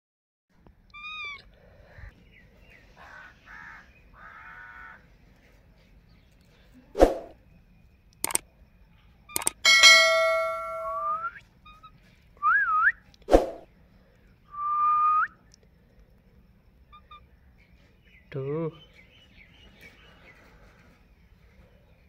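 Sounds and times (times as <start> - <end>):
button clicks: 9.4 - 11.0
ringing chime: 9.5 - 11.2.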